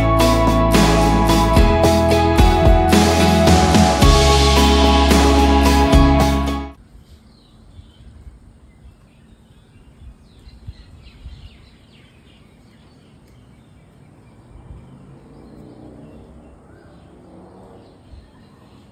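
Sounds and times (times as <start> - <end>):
drawn-out multi-tone sound: 0.0 - 6.8
small birds chirping: 7.0 - 18.9.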